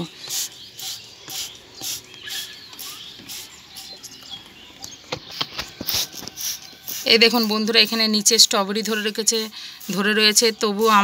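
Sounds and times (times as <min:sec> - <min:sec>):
spray bottle squirting hisses: 0:00.2 - 0:04.2, 0:05.3 - 0:08.0, 0:08.8 - 0:11.0.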